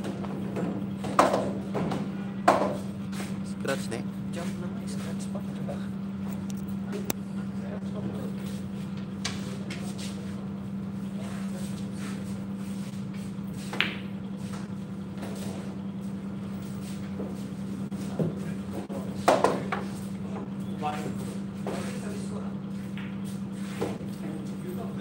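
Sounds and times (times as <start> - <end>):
low room hum: 0.0 - 25.0.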